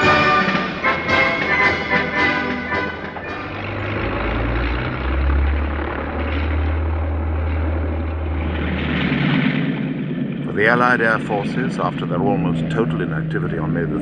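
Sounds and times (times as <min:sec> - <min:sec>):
orchestral music: 0:00.0 - 0:07.6
propeller aircraft engines droning: 0:00.0 - 0:14.0.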